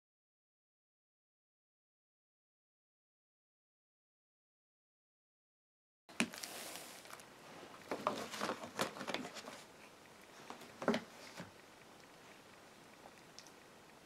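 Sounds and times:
plastic cases tapping and crinkling: 7.9s - 9.7s, 10.5s - 11.5s.

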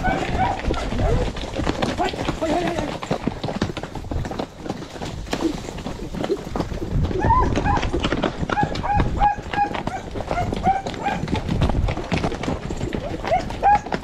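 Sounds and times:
dog yapping: 0.0s - 1.3s, 8.6s - 11.2s, 13.3s - 13.9s
horse hoofbeats: 0.0s - 14.0s.

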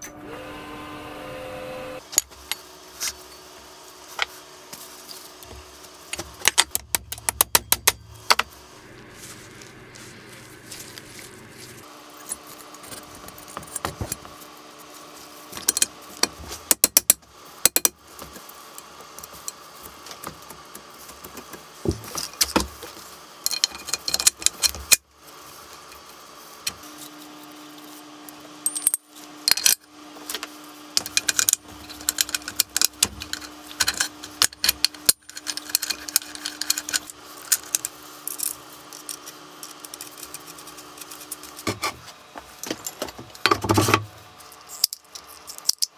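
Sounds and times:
metal parts clinking and rattling: 23.5s - 25.0s, 28.6s - 30.4s, 31.0s - 41.7s, 42.6s - 45.9s.

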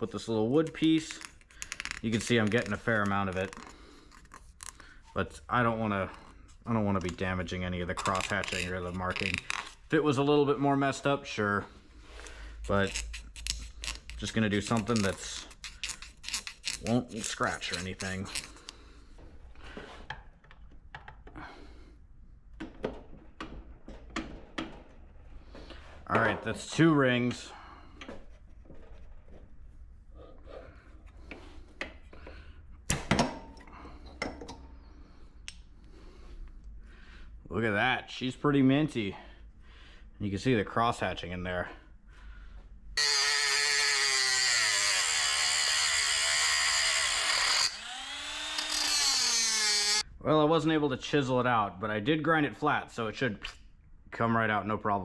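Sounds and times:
rotary tool grinding whine: 14.8s - 18.7s, 43.0s - 50.0s.

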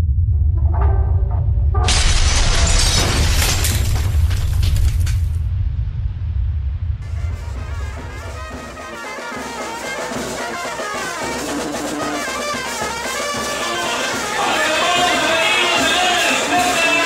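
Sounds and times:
deep rumbling sound effect: 0.0s - 8.8s
music with brass and drums: 7.0s - 17.0s.

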